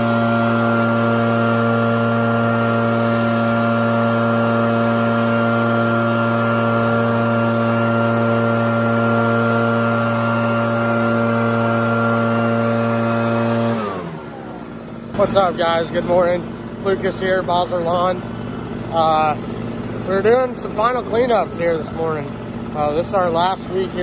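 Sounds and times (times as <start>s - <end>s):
air rushing from nozzle: 0.0s - 15.1s
leaf blower engine running: 0.0s - 24.0s.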